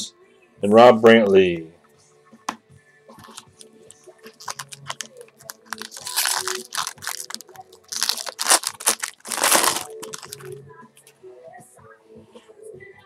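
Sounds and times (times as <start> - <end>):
foil wrapper tearing and crinkling: 4.3 - 10.6.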